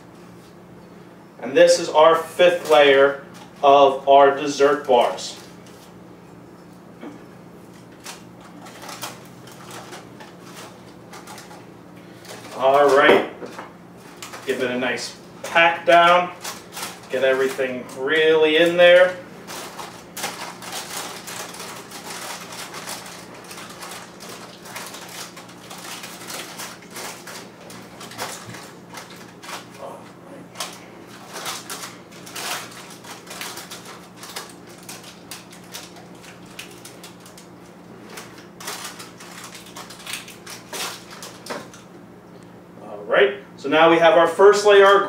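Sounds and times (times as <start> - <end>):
parchment paper crinkling: 7.6 - 13.1, 14.0 - 41.8.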